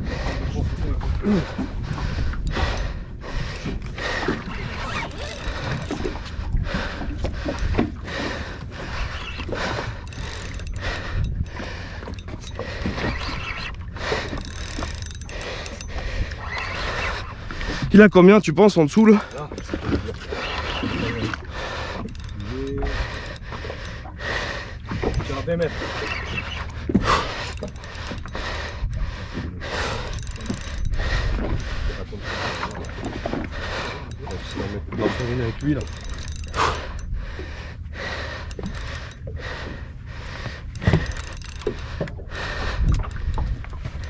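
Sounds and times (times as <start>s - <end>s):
boat rumble: 0.0s - 44.0s
wind and sea noise on microphone: 0.0s - 44.0s
mechanical rattling and clicking: 1.6s - 6.2s, 9.2s - 20.0s, 21.1s - 24.1s, 26.9s - 37.2s, 38.1s - 44.0s.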